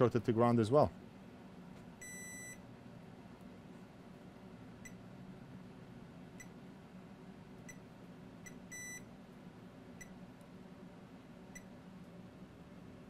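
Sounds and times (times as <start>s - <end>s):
multimeter beeper chirps: 2.0s - 2.6s, 8.5s - 9.1s.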